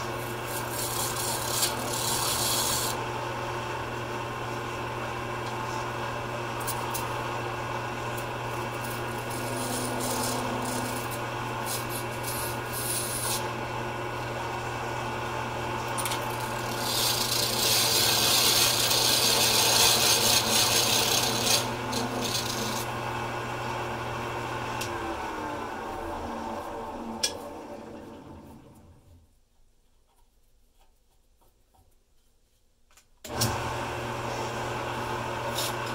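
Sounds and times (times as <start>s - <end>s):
chisel scraping on lathe: 0.0s - 3.0s, 8.5s - 13.5s, 16.0s - 23.0s
lathe motor hum: 0.0s - 29.0s, 33.3s - 35.9s.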